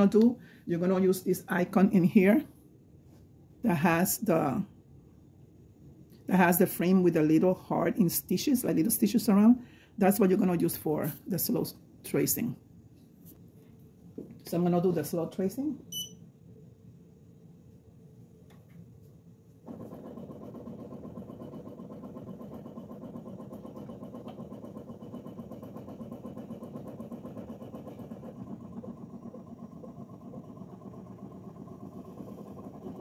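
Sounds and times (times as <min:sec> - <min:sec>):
embroidery machine running: 0:19.6 - 0:33.0.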